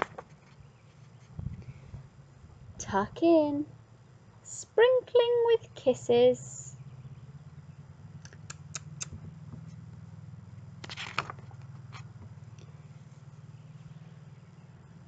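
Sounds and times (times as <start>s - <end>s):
steady low hum: 0.0s - 15.0s
paper page rustle: 10.8s - 12.1s.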